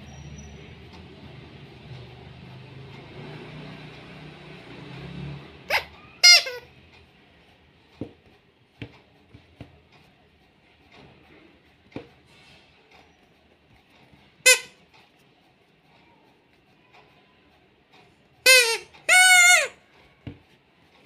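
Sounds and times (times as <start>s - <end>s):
squeeze toy high squeaks: 5.7s - 6.8s, 14.4s - 14.8s, 18.4s - 20.0s
soft knocks of toys handled: 8.0s - 9.8s, 20.2s - 20.5s.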